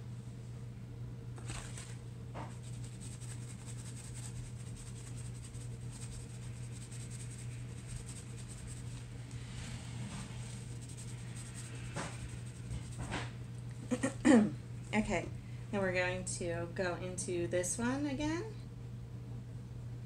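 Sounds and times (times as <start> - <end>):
low hum: 0.0 - 20.0
paper rustling: 1.4 - 4.2
brush scratching on paper towel: 2.5 - 13.3.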